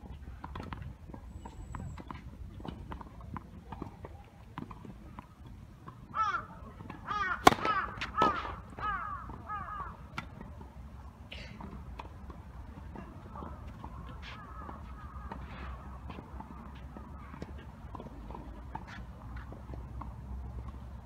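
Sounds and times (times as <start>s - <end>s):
crow cawing: 6.2s - 6.5s, 7.1s - 10.0s.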